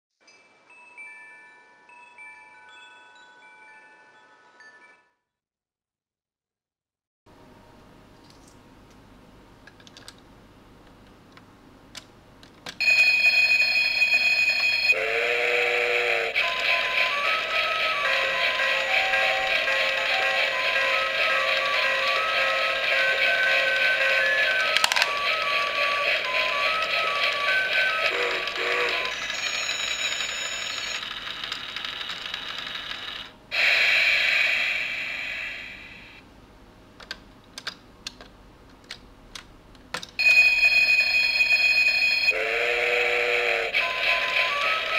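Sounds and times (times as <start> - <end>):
electronic alarm ringing: 12.8 - 15.0, 18.1 - 31.2, 40.2 - 42.4
toy train motor whirring: 15.3 - 34.9, 40.6 - 44.9
loud hiss: 33.5 - 36.2.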